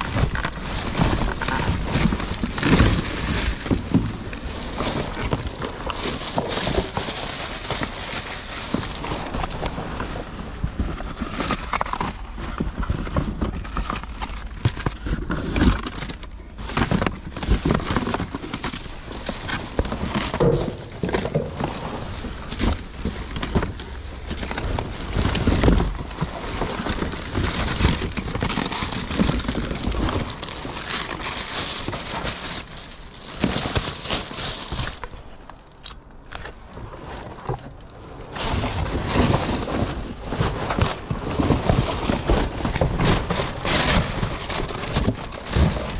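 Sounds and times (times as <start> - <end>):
cardboard rustling and scraping: 0.0 - 45.9
plastic wrap crinkling: 0.0 - 45.9.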